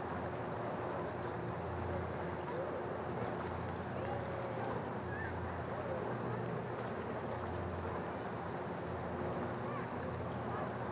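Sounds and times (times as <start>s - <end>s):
wind: 0.0s - 10.9s.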